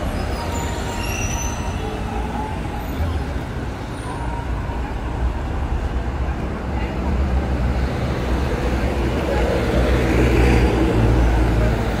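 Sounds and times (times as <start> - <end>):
traffic rumble: 0.0 - 12.0
faint high squeak: 0.1 - 3.2.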